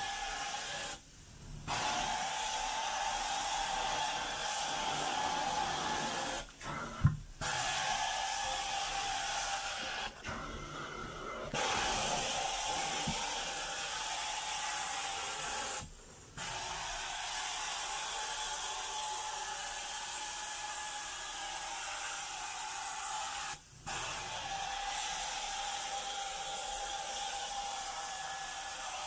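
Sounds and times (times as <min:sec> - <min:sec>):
thump: 0:07.0 - 0:07.3.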